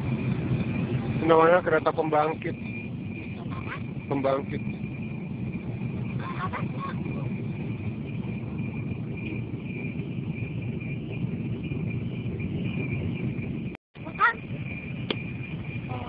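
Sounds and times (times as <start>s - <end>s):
passing train rumble: 0.0s - 16.0s.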